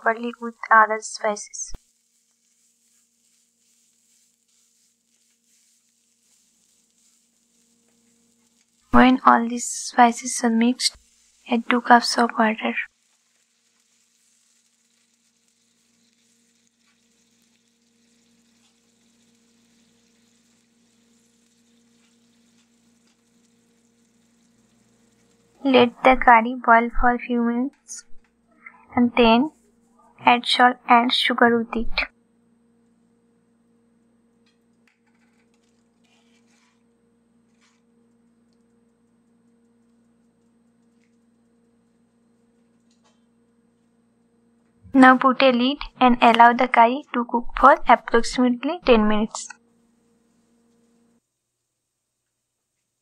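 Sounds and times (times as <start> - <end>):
food sizzling in a frying pan: 0.0 - 26.6, 34.5 - 36.8
steady low hum: 0.0 - 51.2
spatula stirring in a pan: 1.8 - 9.0, 10.0 - 25.6, 34.9 - 37.9.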